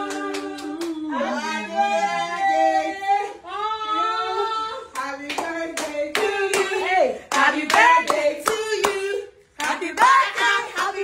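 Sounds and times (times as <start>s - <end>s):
hands clapping: 0.0s - 1.0s, 5.0s - 9.0s
high voices singing and whooping: 0.0s - 11.0s.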